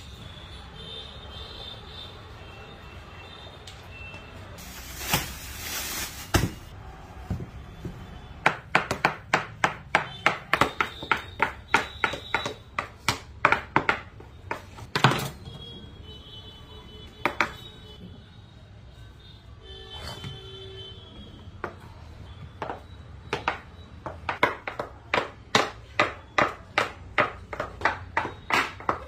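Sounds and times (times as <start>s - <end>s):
knife chopping on a table: 22.7s - 29.0s.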